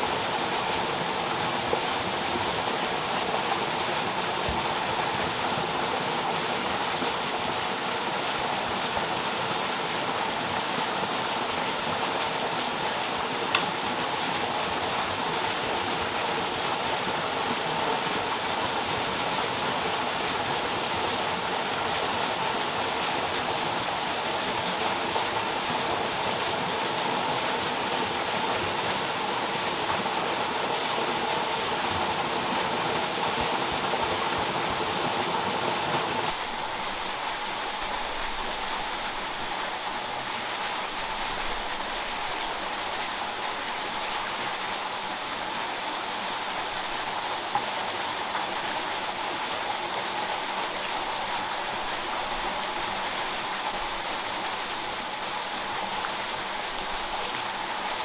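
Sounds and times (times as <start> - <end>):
running water rushing: 0.0 - 58.0.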